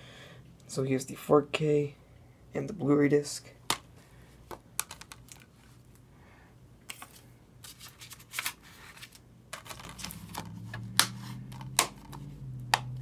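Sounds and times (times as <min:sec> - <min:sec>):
plastic cases clicking on table: 0:04.5 - 0:05.4, 0:09.6 - 0:13.0
sharp plastic clacks: 0:04.5 - 0:05.5.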